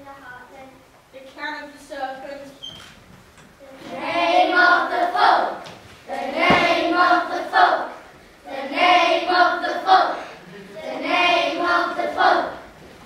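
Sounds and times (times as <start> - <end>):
children chanting in unison: 3.8 - 12.8
low thump: 6.4 - 6.9.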